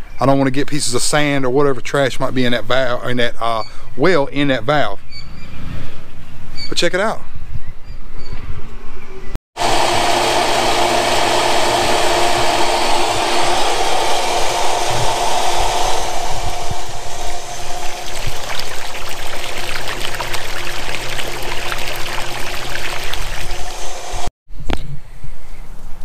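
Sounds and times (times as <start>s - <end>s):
electric pump motor hum: 9.6s - 24.3s
water gushing from pipe: 9.6s - 24.3s.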